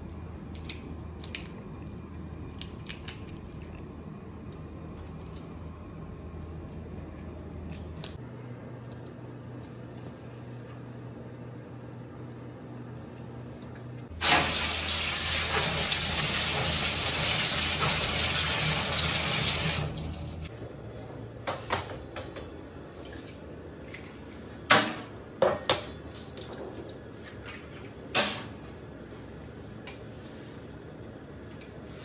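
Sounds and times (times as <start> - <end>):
tap water running into sink: 14.2 - 20.4.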